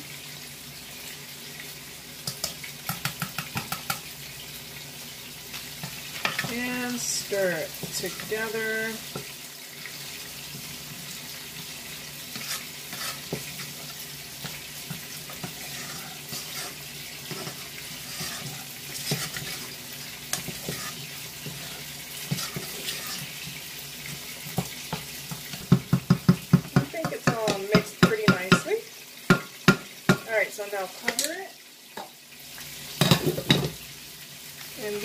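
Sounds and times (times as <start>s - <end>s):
fish sizzling in a pan: 0.0s - 35.0s
spoon scraping and knocking pot: 2.2s - 4.1s, 5.8s - 6.7s, 12.3s - 13.8s, 14.4s - 28.6s, 33.0s - 33.8s
wooden spoon stirring in saucepan: 5.5s - 28.7s.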